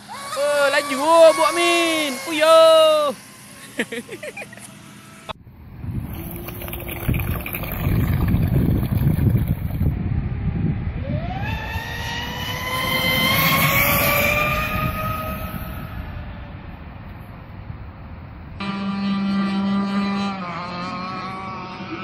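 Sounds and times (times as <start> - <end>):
rc boat motor whine: 0.0 - 9.9, 11.2 - 16.2
low wind rumble: 5.3 - 18.7.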